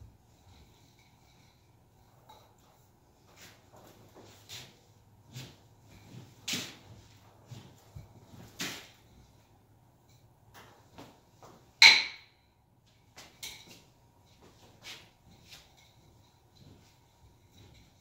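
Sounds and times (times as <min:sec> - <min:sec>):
nunchaku clacking: 0:11.8 - 0:12.4.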